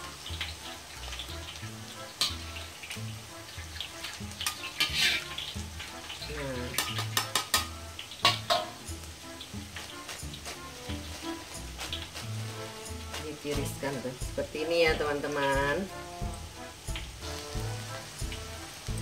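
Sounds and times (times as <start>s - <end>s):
hot oil sizzling: 0.0s - 19.0s
metal spatula scraping a wok: 0.7s - 16.2s.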